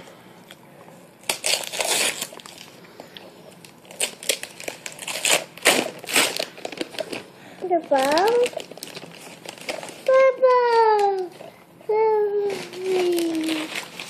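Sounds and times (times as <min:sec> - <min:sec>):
wrapping paper crinkling and tearing: 0:01.2 - 0:02.8, 0:03.5 - 0:11.5, 0:12.3 - 0:14.0.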